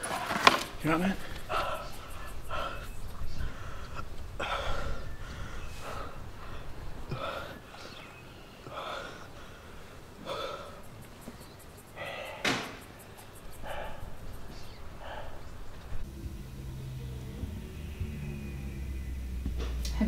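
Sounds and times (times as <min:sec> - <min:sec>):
boy gasping breaths: 0:01.2 - 0:11.0.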